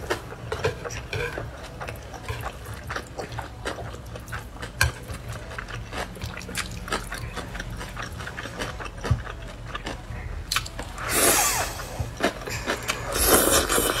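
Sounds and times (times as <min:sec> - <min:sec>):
slurping noodles: 0:12.7 - 0:14.0.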